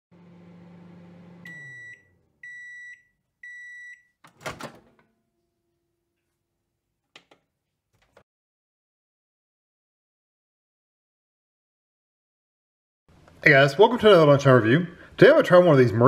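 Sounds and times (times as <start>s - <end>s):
microwave oven humming: 0.1s - 6.0s.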